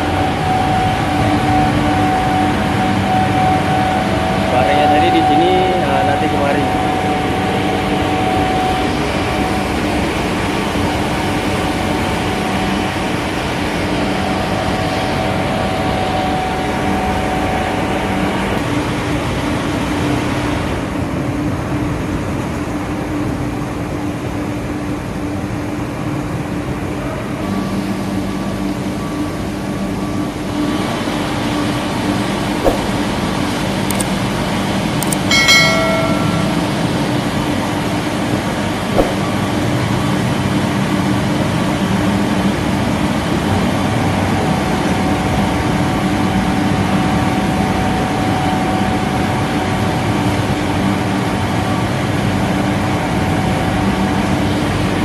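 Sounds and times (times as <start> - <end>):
industrial laundry machinery humming: 0.0 - 55.0
short high tone: 35.3 - 37.1.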